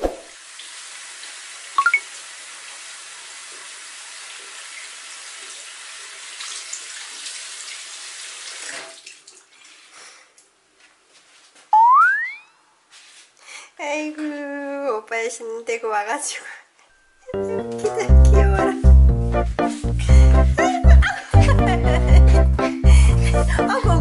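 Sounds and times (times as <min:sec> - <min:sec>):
tap water running: 0:00.2 - 0:10.0.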